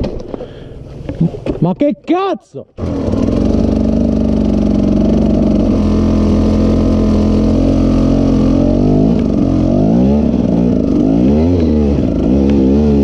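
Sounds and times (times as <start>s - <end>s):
engine revs blipped: 2.8s - 13.0s
two-stroke engine idling: 2.8s - 13.0s.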